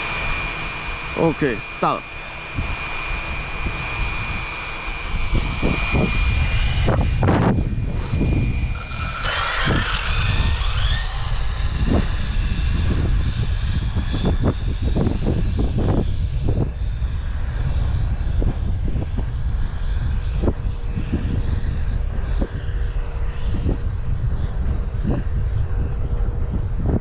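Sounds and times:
electric motor whining: 0.0s - 13.6s
wind rumble on microphone: 2.2s - 27.0s.

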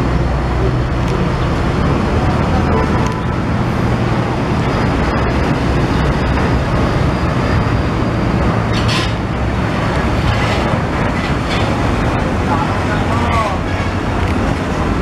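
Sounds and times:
diesel truck engine droning: 0.0s - 15.0s.

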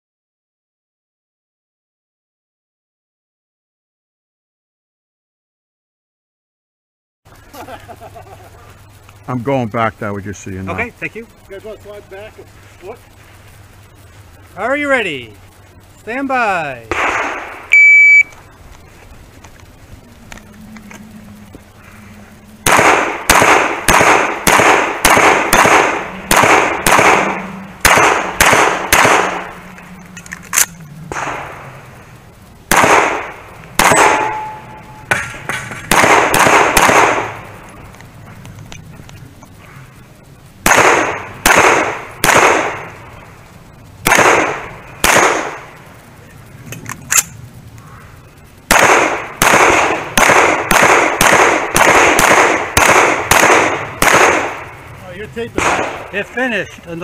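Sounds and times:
pistol firing: 16.9s - 17.7s, 22.6s - 29.6s, 30.5s - 31.6s, 32.7s - 37.5s, 40.6s - 43.0s, 44.0s - 45.7s, 48.7s - 54.7s, 55.6s - 56.2s
brief ringing tone: 17.7s - 18.3s, 34.2s - 35.1s.

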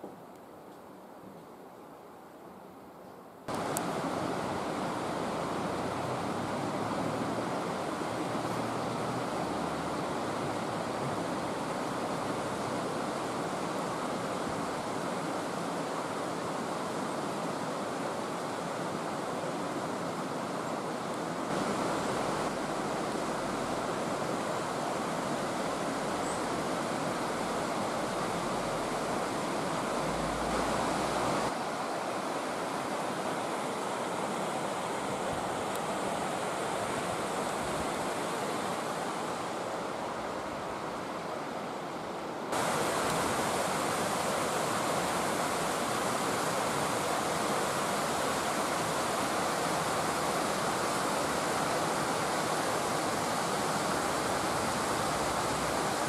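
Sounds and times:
rushing mountain stream: 0.0s - 56.0s.

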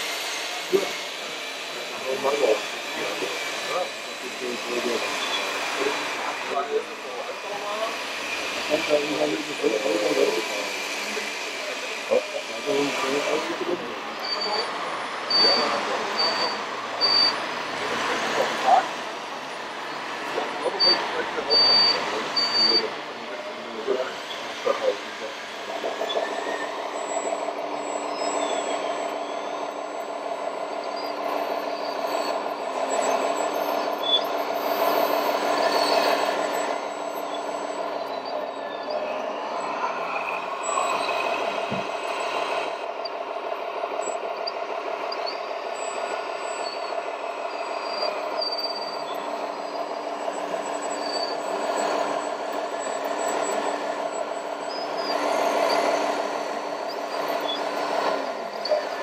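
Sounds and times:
model trucks engine-like drone: 0.0s - 59.0s
short high beeps: 14.2s - 14.7s, 15.3s - 17.5s, 20.7s - 22.9s.

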